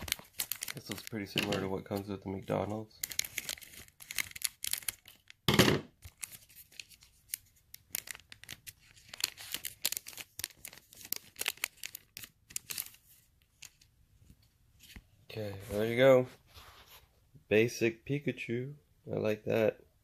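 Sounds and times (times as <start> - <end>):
plastic pack crinkling: 0.0 - 13.9.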